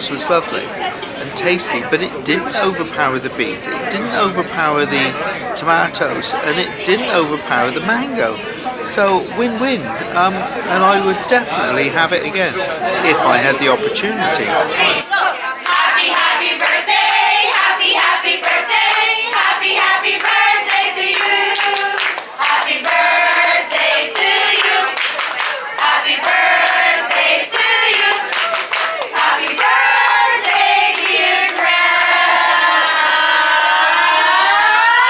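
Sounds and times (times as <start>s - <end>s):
group singing in chorus: 14.4s - 35.0s
people clapping hands: 15.1s - 35.0s.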